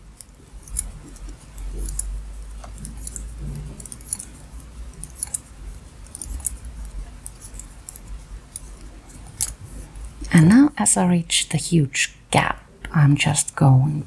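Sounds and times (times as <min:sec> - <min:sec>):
knitting needles clicking: 0:00.1 - 0:10.6.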